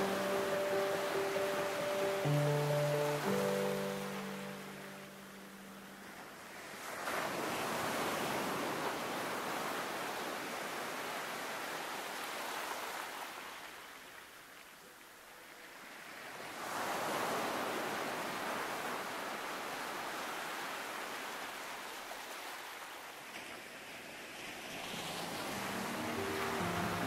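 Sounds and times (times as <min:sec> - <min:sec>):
rushing sea: 0:00.0 - 0:14.8, 0:15.5 - 0:27.0.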